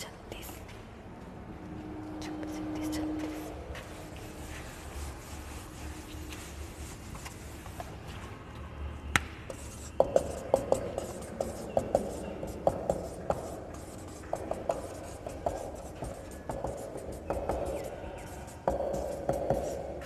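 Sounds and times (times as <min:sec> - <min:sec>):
marker rubbing on whiteboard: 0:02.8 - 0:08.0, 0:09.5 - 0:20.0
marker tapping on whiteboard: 0:09.2 - 0:20.0.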